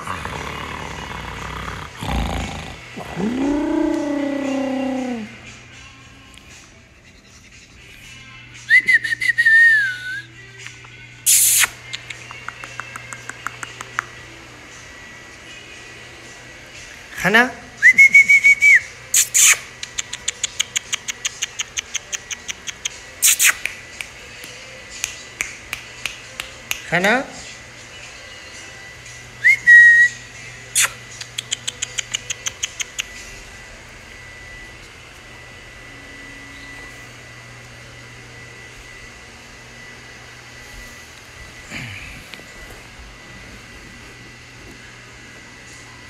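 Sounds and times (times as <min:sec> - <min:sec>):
indoor hum and hiss: 0:00.0 - 0:46.0
tongue clicking: 0:10.6 - 0:14.1, 0:19.2 - 0:26.8, 0:30.7 - 0:33.1.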